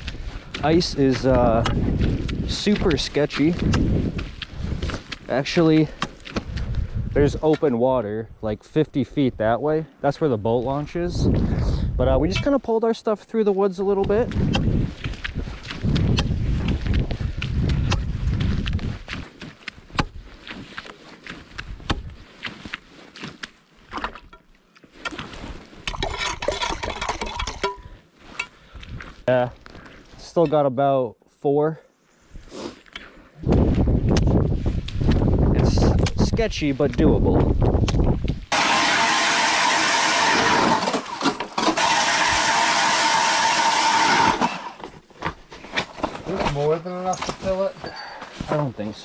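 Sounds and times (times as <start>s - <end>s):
ice auger motor whining: 38.5s - 44.9s.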